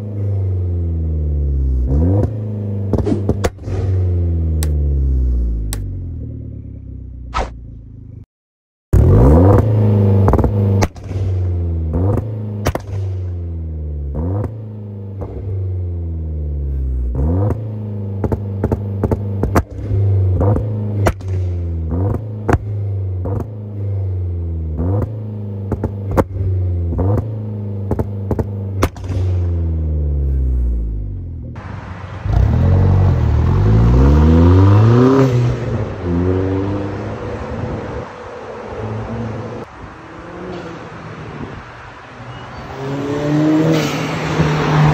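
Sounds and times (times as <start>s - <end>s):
car accelerating: 0.0s - 8.2s, 9.0s - 44.9s
car engine revving: 0.0s - 8.2s, 8.9s - 44.9s.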